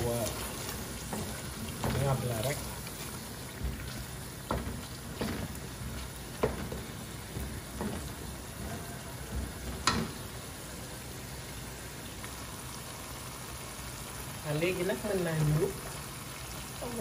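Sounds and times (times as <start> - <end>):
sauce sizzling and bubbling: 0.0 - 17.0
wooden spatula knocking pot: 0.2 - 2.7, 3.6 - 10.2.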